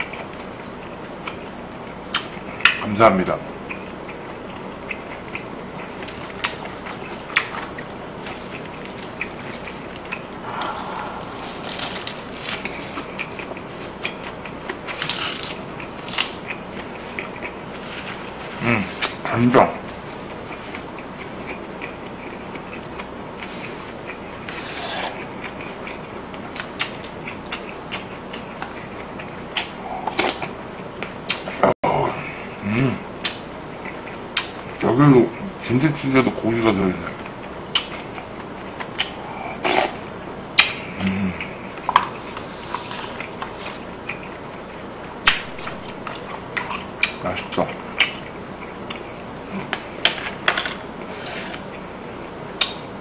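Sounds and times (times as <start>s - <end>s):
chewing: 0.0s - 2.9s, 3.6s - 31.7s, 32.4s - 35.6s, 37.0s - 52.9s
lettuce leaf rustling: 10.5s - 13.9s
slurp from cup: 24.5s - 25.2s.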